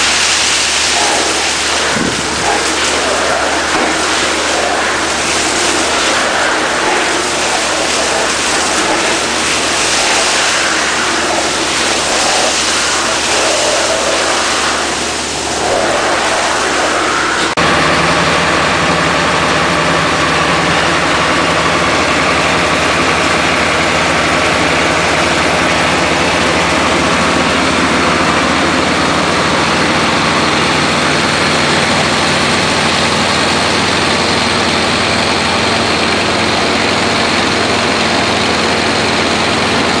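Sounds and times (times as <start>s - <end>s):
vacuum blower hiss: 0.0s - 17.6s
truck engine drone: 0.0s - 40.0s.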